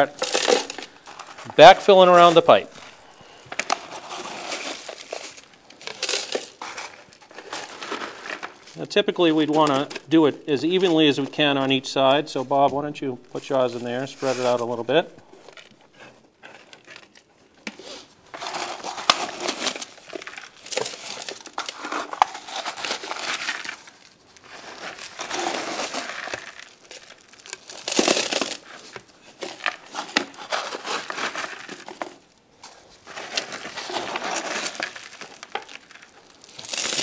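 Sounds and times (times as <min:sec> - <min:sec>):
stones clicking: 0:00.0 - 0:01.7, 0:02.4 - 0:08.6, 0:18.4 - 0:32.2, 0:33.1 - 0:37.0
gravel and soil pouring: 0:00.0 - 0:10.2, 0:17.8 - 0:37.0.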